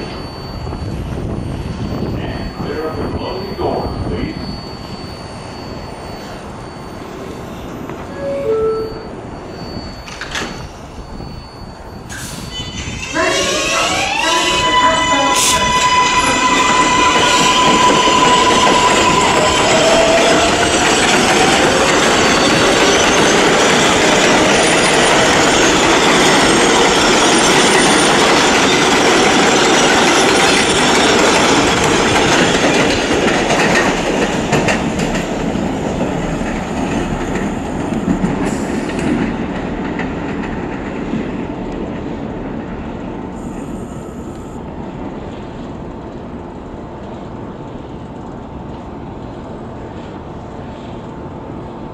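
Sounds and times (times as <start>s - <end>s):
train wheels clattering on rails: 15.4s - 43.0s.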